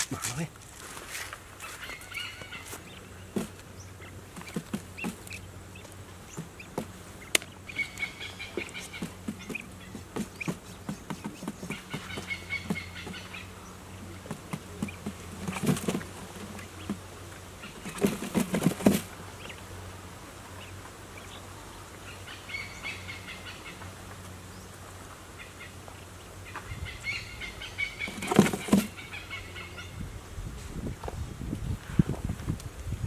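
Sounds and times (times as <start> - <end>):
quail pecking grain: 0.0 - 29.9
bird wings fluttering: 2.7 - 5.5, 6.4 - 13.4, 14.1 - 19.2, 28.1 - 29.0.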